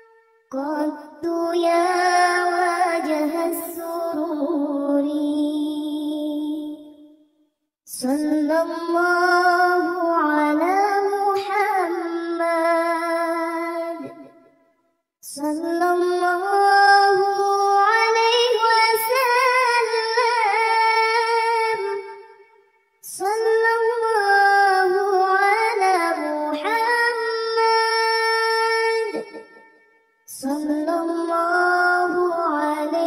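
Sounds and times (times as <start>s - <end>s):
high voice chanting devotional song: 0.0s - 7.0s, 7.9s - 14.4s, 15.2s - 22.4s, 23.0s - 29.6s, 30.3s - 33.0s.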